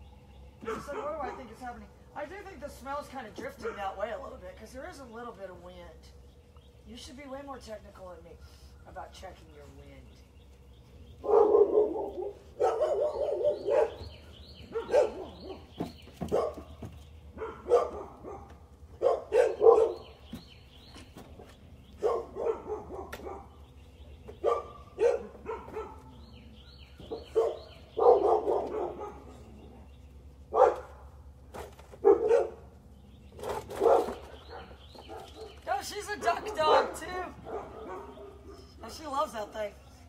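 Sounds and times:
dogs barking: 0.6 - 1.8, 3.4 - 4.3, 11.1 - 20.4, 21.8 - 39.3.

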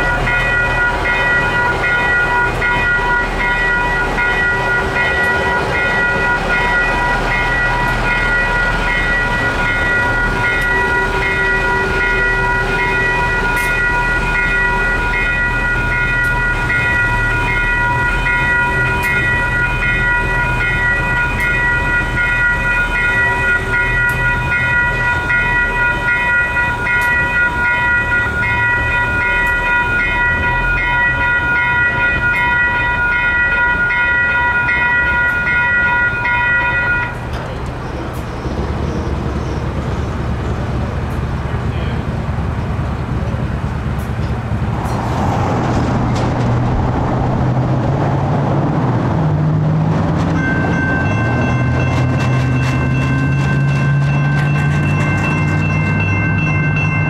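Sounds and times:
railroad crossing bells ringing: 0.0 - 45.0, 48.4 - 57.0
train rumbling past: 0.0 - 57.0.

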